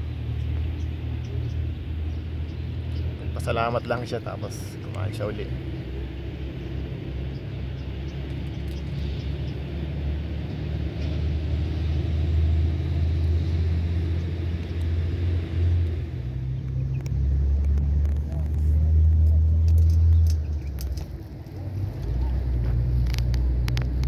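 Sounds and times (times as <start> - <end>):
road traffic rumble: 0.0 - 24.0.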